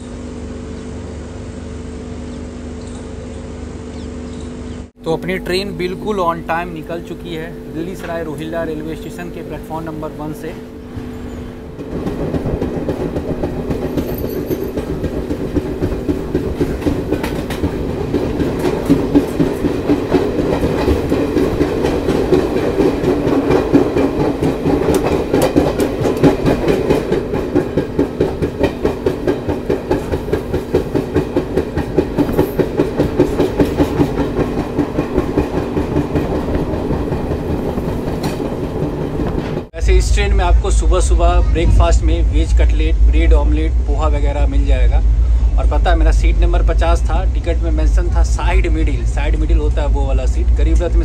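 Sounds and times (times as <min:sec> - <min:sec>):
train wheels clattering over rail joints: 0:11.7 - 0:39.7.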